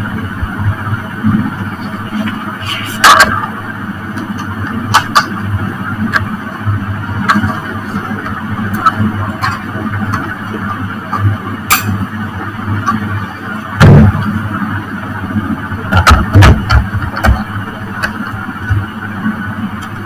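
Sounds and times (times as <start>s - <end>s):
steady low hum: 0.0s - 20.0s
equipment knocks and thumps: 13.8s - 14.4s, 15.9s - 18.9s.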